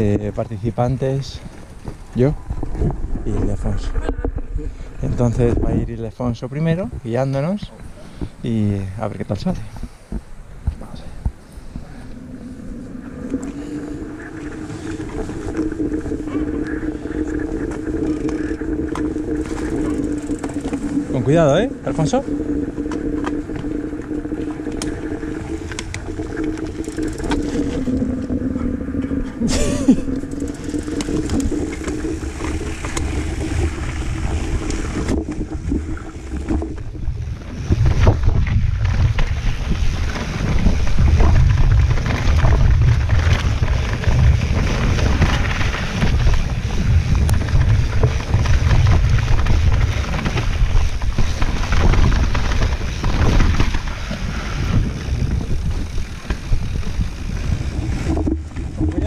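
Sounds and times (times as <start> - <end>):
bike tyres on rough dirt trail: 0.0 - 59.0
wind buffeting microphone: 0.0 - 59.0
buzzing tone wavering in pitch: 12.0 - 38.3.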